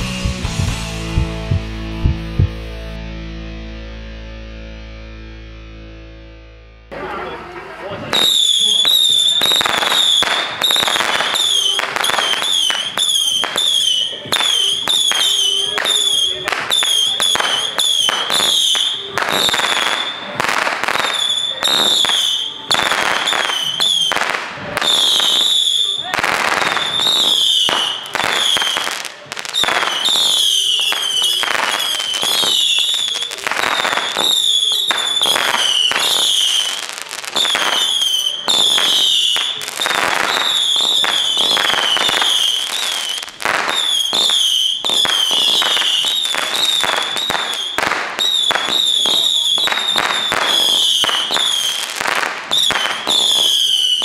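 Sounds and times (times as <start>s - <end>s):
firework bangs: 8.0s - 54.0s
firework whistles sliding down: 20.9s - 54.0s.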